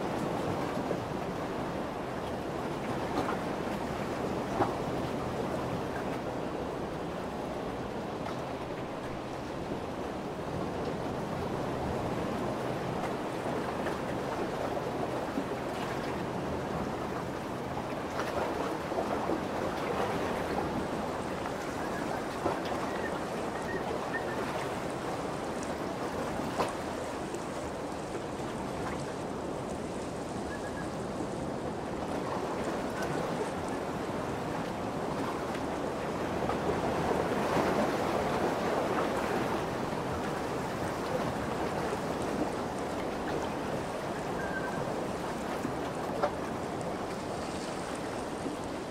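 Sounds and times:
lake waves lapping: 0:10.4 - 0:48.9.

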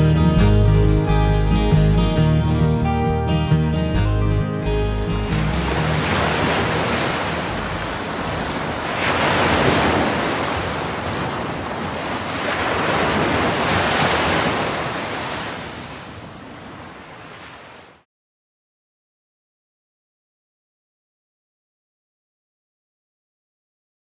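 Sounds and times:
sea waves breaking on beach: 0:05.0 - 0:18.0.

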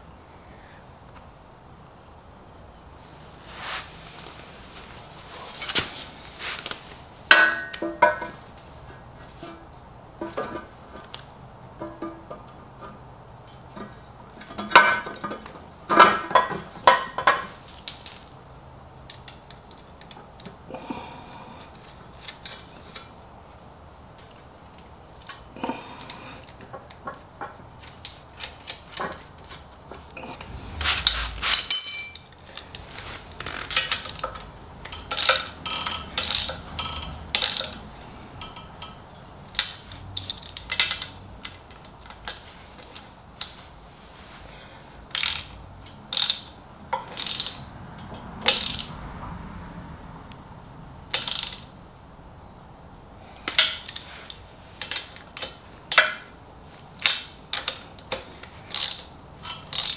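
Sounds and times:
metal parts and hand tools clinking: 0:30.4 - 0:43.5, 0:57.0 - 0:59.9
ringing metallic clink: 0:31.5 - 0:32.4.

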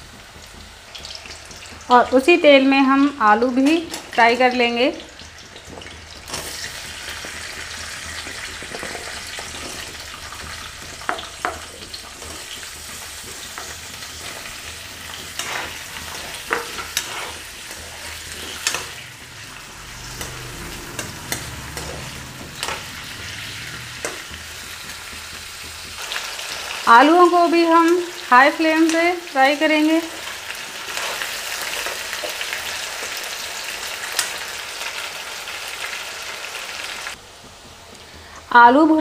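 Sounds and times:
potatoes sizzling in hot oil: 0:00.0 - 0:39.0
spoon scraping and clinking pan: 0:15.2 - 0:19.1.

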